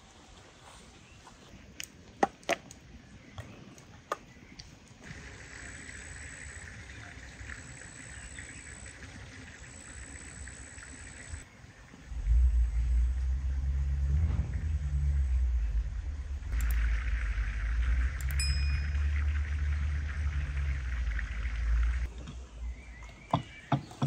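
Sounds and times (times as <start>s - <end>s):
loud low rumble: 11.9s - 22.8s.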